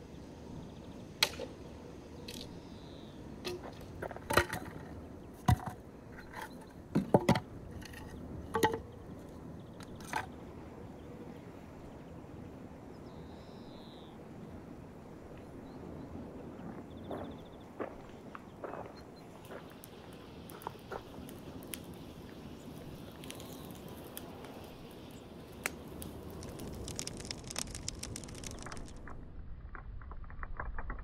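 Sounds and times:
wood pieces clunking on gravel: 3.5 - 8.9, 17.8 - 21.9, 25.7 - 31.0.

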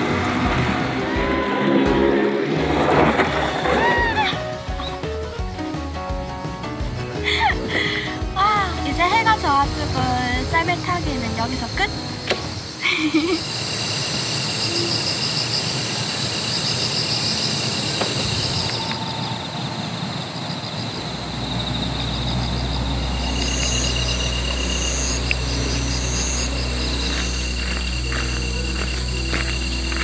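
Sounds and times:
insects chirping in trills: 7.2 - 30.0
outdoor hiss: 9.4 - 21.5.

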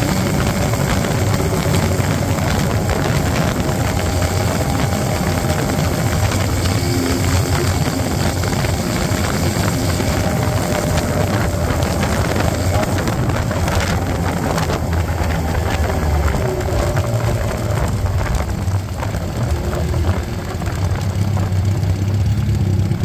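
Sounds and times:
motorcycle engine running: 0.0 - 23.0
wind and road noise: 0.0 - 23.0.

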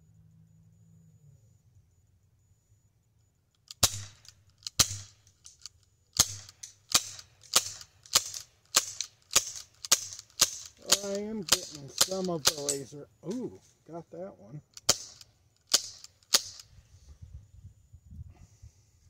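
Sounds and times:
air pistol shots: 3.7 - 12.8, 14.8 - 16.8.

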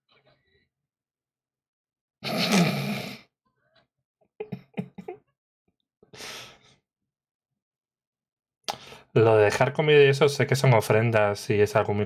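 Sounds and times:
man chuckling breathily: 4.4 - 5.2
breathy exhale: 6.2 - 6.7.

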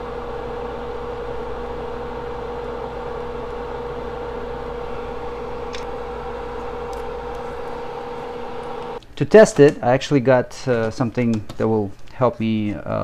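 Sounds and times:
electrical hum with whine: 0.0 - 9.1.

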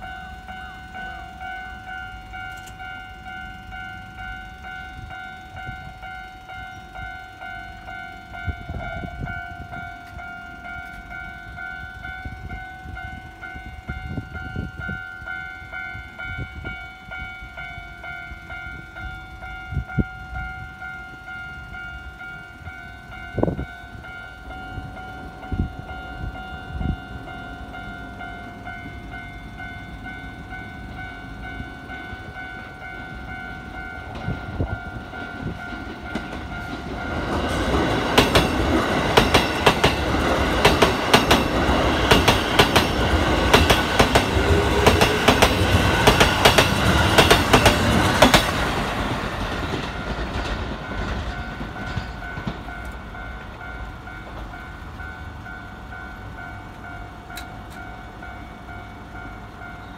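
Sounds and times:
level-crossing alarm ringing: 0.0 - 59.9
train wheels clattering: 22.6 - 55.1.

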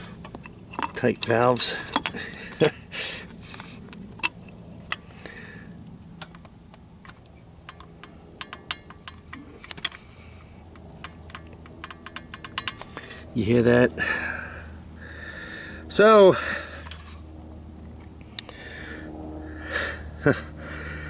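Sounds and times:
metallic clicks and taps: 6.2 - 10.0, 10.8 - 12.9.

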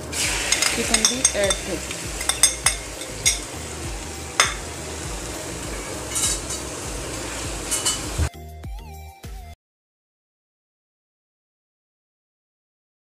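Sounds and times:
chicken sizzling in a frying pan: 0.0 - 8.3
faint music: 0.0 - 8.3
spatula knocking and scraping pan: 0.3 - 8.3.

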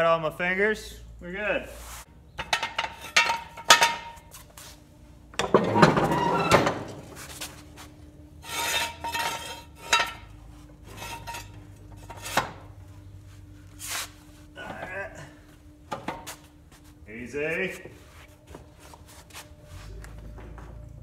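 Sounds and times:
metal scrapes and knocks: 2.4 - 4.3, 5.4 - 7.2, 8.4 - 12.7.

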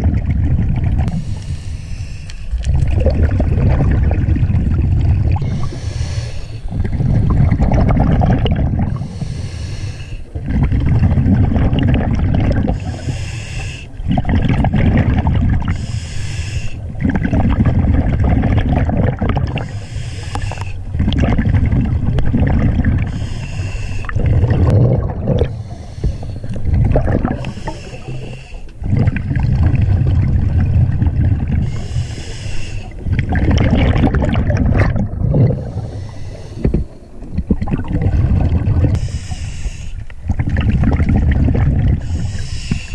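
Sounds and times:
exhaled bubbles rushing: 0.0 - 1.2, 2.5 - 9.2, 10.3 - 13.1, 14.0 - 15.8, 16.8 - 32.0, 32.9 - 39.0, 40.2 - 42.9
scuba regulator inhale hiss: 1.1 - 2.6, 5.4 - 6.7, 8.9 - 10.3, 12.7 - 14.0, 15.7 - 16.8, 19.6 - 20.8, 23.1 - 24.2, 25.5 - 26.5, 27.4 - 28.7, 31.6 - 33.0, 35.7 - 37.0, 39.0 - 40.0, 42.0 - 42.9.

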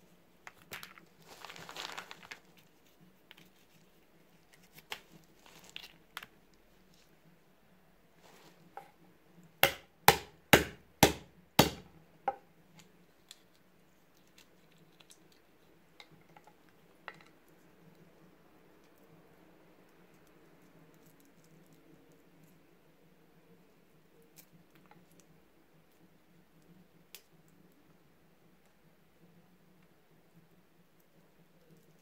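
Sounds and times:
mallet cracking walnuts on wood: 9.6 - 12.4.

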